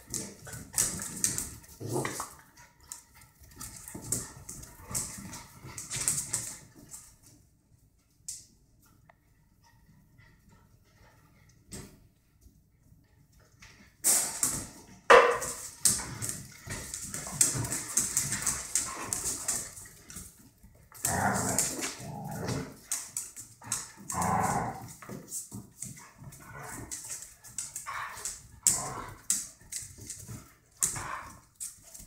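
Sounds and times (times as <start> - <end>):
claws skittering on tiled floor: 15.4 - 32.0.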